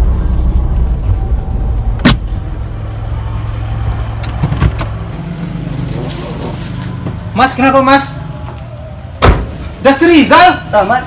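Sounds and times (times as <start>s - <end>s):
car engine idling: 0.0s - 9.7s.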